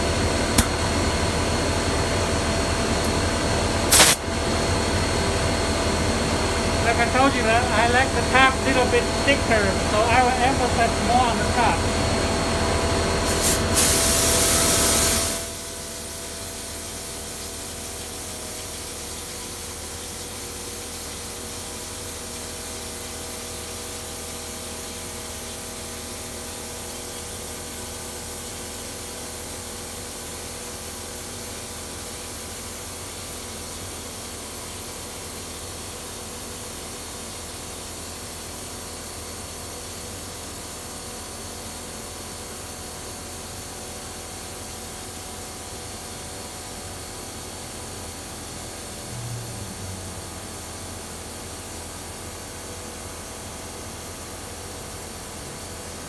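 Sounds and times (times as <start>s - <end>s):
spray gun hissing: 3.9s - 4.2s, 13.2s - 15.5s.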